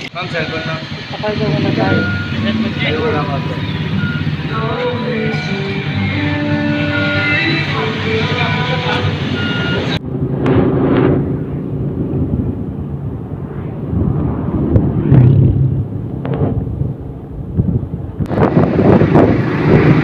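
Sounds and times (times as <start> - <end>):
electronic tones changing pitch: 0.2 - 6.2
wind noise on microphone: 9.4 - 20.0.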